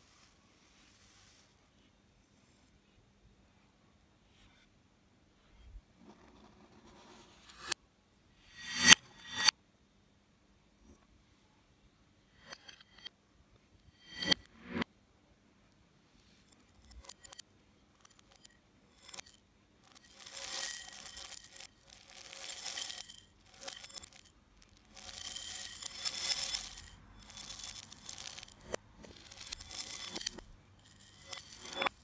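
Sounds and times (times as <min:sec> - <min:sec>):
reversed cereal rustling in bowls: 0:00.0 - 0:02.6, 0:16.7 - 0:17.4, 0:18.0 - 0:32.0.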